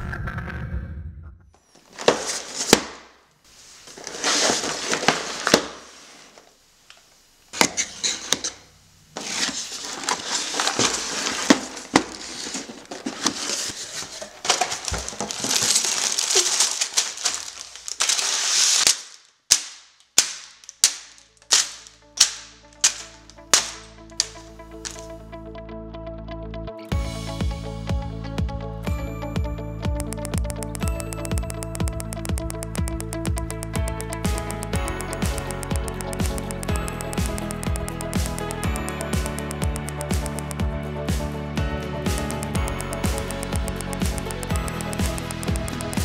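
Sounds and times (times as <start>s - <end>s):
cardboard box opening: 1.9s - 2.9s, 3.9s - 5.8s, 9.2s - 18.8s
plastic bags crinkling: 3.9s - 5.9s, 9.6s - 19.3s, 20.5s - 25.1s
sharp clicks: 29.9s - 40.7s, 42.1s - 46.0s.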